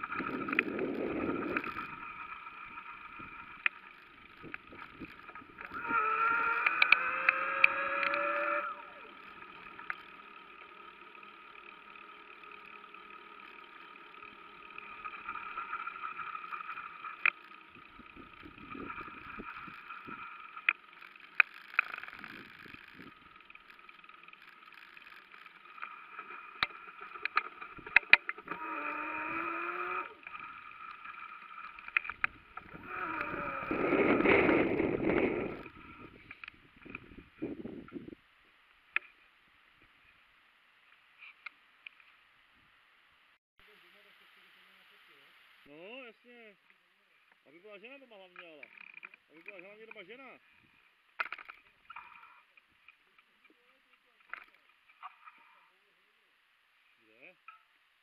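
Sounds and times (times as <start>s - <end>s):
bicycle wheels humming: 0.0s - 58.0s.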